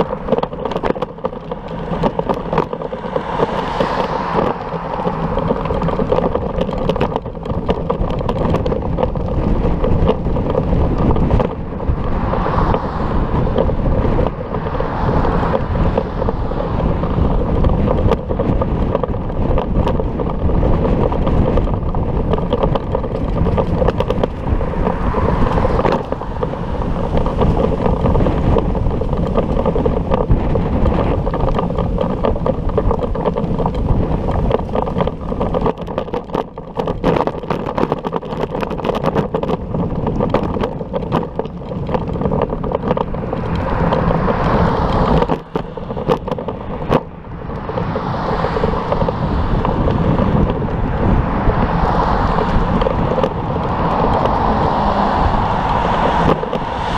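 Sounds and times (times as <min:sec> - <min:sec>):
wind rushing over microphone: 0:00.0 - 0:56.9.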